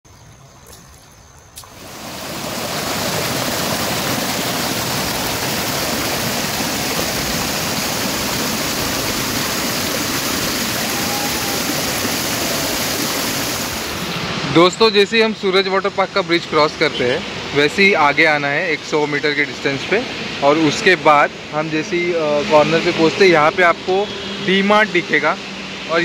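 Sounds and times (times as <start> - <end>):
waterfall rushing: 1.6 - 15.6.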